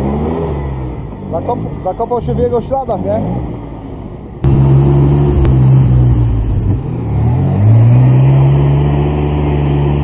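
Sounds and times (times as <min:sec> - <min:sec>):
engine revving hard: 0:04.4 - 0:10.0.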